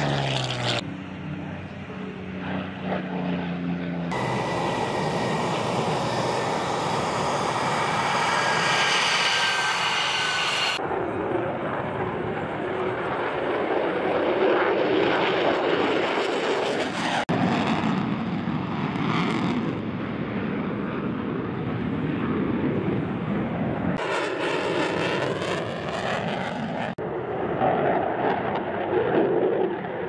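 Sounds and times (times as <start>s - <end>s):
fighter jet engine roar: 0.0s - 30.0s
jet flyby whooshing hiss: 4.1s - 10.8s.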